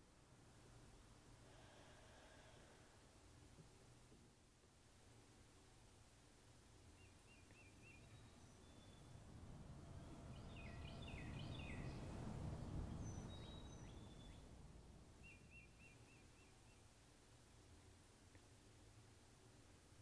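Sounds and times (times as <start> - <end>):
faint birdsong chirps and trills: 6.7 - 18.0
low rumble: 8.7 - 15.1.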